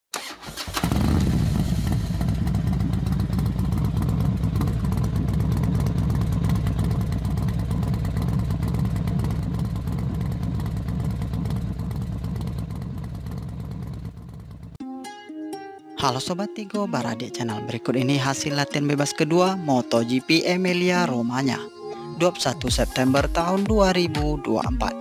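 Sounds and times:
motorcycle engine running steadily: 0.8 - 14.8.

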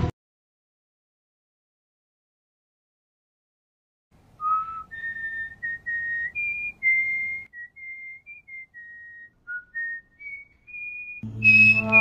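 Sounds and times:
person whistling a slow tune: 4.4 - 12.0.

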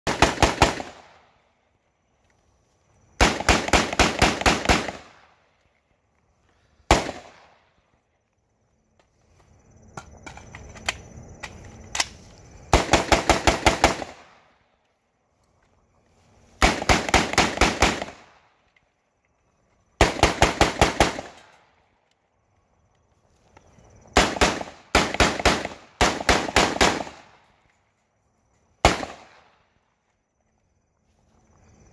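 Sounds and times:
rifle firing bursts: 0.1 - 1.2, 3.2 - 5.3, 6.9 - 7.5, 12.7 - 14.4, 16.6 - 18.4, 20.0 - 21.5, 24.2 - 27.4, 28.8 - 29.5
sharp clicks: 9.9 - 12.4.

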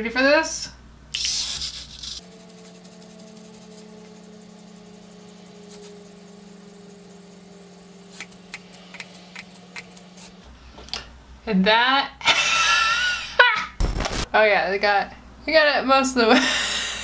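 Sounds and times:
hissing noise: 1.2 - 10.3
servo motors humming: 1.6 - 10.3.

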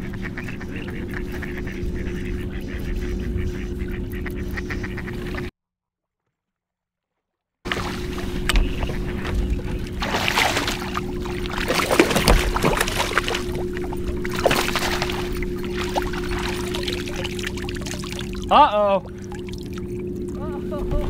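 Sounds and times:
low steady hum: 0.0 - 5.5, 7.7 - 21.0
fish splashing in water: 7.7 - 20.4.

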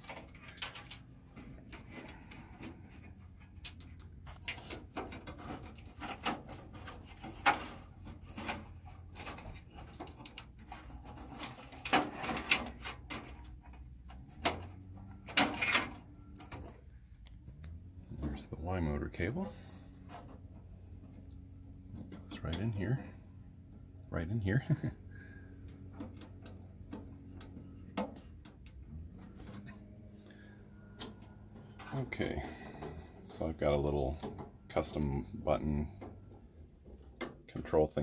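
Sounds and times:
cable rustling and scraping: 0.0 - 23.2.

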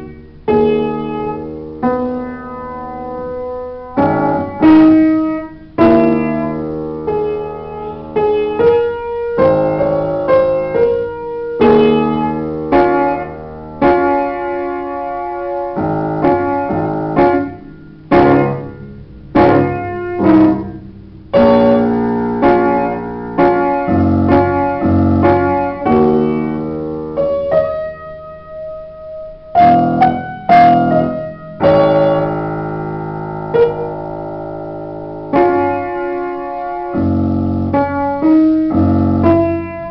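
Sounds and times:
solo piano playing: 0.0 - 39.9.

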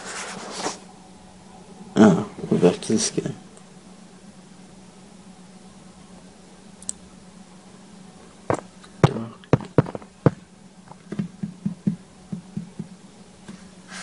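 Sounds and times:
low steady hum: 0.0 - 14.0
sharp taps and knocks: 8.5 - 10.4, 11.1 - 13.0.

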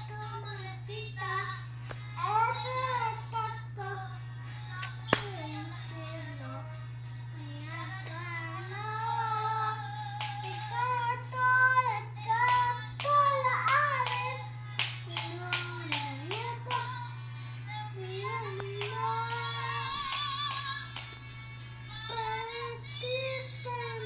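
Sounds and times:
child singing: 0.0 - 21.0, 21.9 - 24.0
steady low hum: 0.0 - 24.0
sharp hand claps: 4.8 - 5.4, 10.2 - 10.6, 12.5 - 17.0, 18.8 - 19.5, 20.1 - 21.2.

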